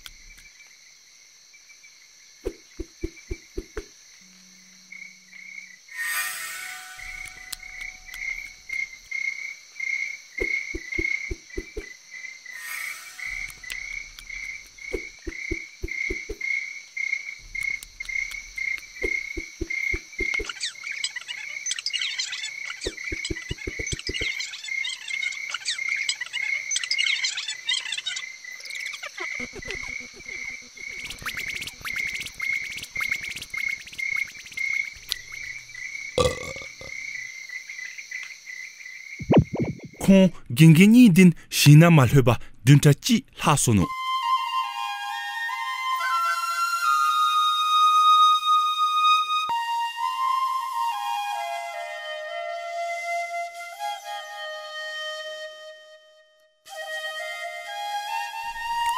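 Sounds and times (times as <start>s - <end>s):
frog and insect chorus: 0.0s - 40.4s
clicks and crunches of eating: 17.6s - 19.0s.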